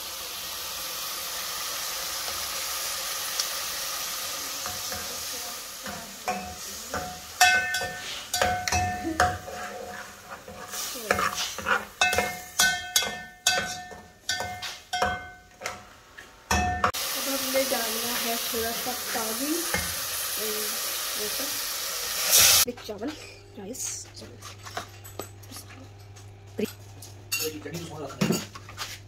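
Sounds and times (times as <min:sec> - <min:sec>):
masala sizzling in a pot: 0:00.0 - 0:22.7
metal spatula scraping a pot: 0:05.8 - 0:15.2.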